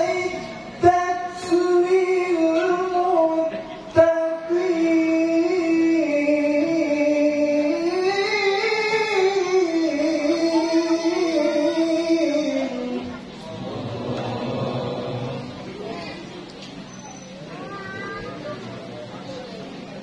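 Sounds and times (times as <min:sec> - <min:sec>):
man chanting through a microphone: 0:00.0 - 0:15.8.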